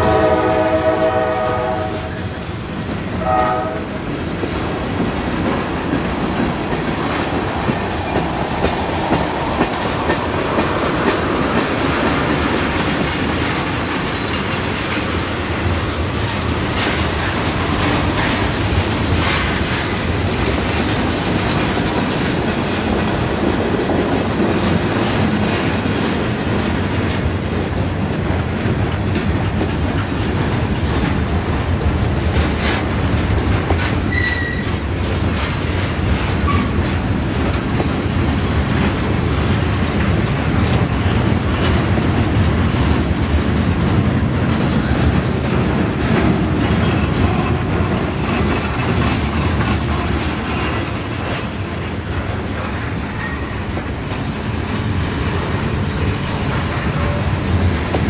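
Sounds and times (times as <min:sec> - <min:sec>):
train horn: 0:00.0 - 0:02.4, 0:03.2 - 0:04.1, 0:34.1 - 0:34.7
train wheels clacking over rail joints: 0:00.0 - 0:58.0.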